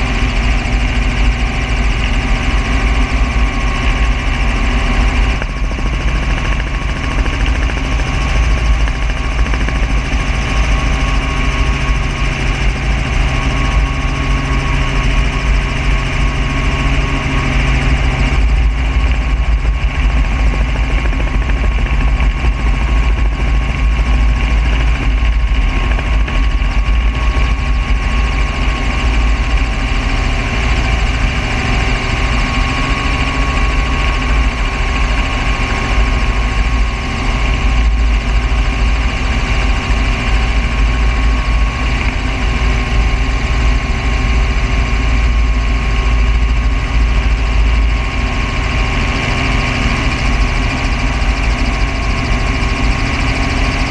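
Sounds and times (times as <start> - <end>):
helicopter rotor and engine noise: 0.0 - 53.9
low hum: 0.0 - 53.9.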